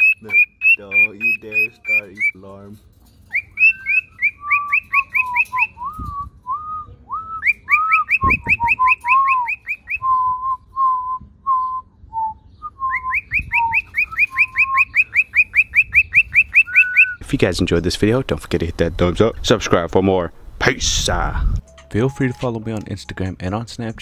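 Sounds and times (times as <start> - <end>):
cockatiel low whistled notes: 3.3 - 17.2.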